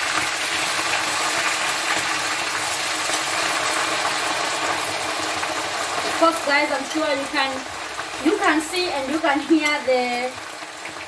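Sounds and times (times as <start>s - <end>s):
oil sizzling in a frying pan: 0.0s - 11.0s.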